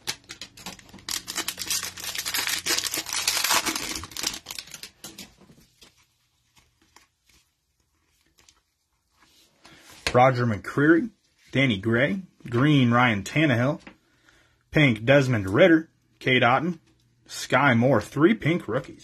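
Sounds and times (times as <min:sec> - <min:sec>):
foil wrapper crinkling and ripping: 0:00.0 - 0:09.0.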